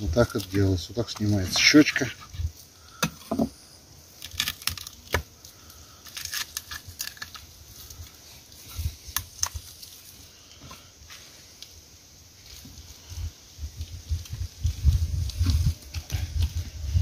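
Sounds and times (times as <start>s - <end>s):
wet crackles and snaps: 4.1s - 8.2s, 9.1s - 10.0s.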